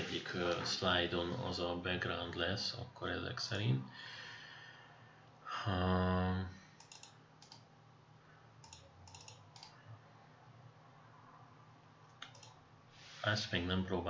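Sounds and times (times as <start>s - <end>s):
computer mouse clicks: 6.8s - 7.7s, 8.6s - 9.8s, 12.1s - 12.6s.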